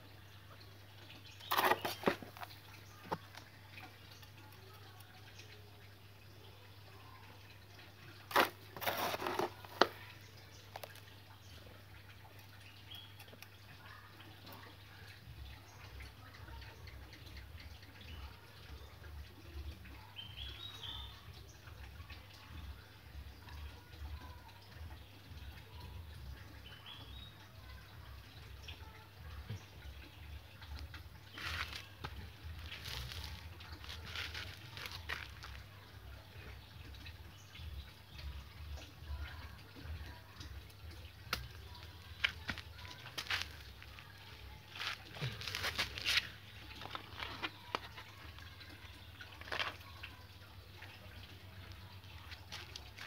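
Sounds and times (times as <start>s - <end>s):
granular soil crunching rustle: 1.4s - 3.1s, 8.3s - 10.1s, 31.3s - 35.6s, 42.0s - 47.6s
scoop scraping: 1.4s - 3.4s, 8.3s - 10.0s.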